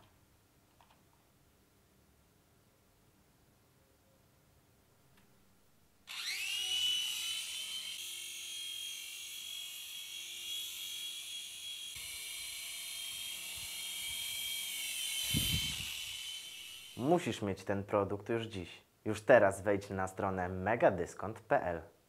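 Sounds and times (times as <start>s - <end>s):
toy helicopter motors whining: 6.1s - 17.2s.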